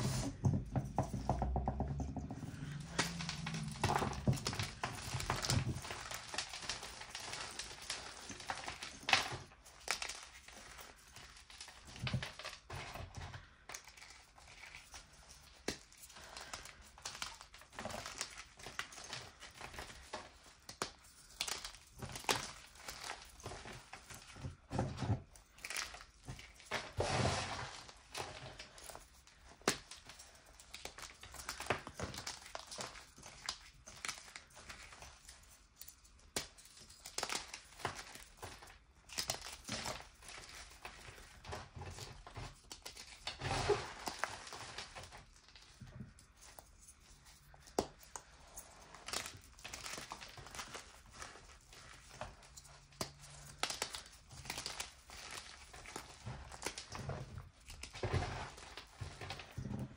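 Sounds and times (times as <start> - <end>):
hands crushing chalk: 0.0 - 59.9.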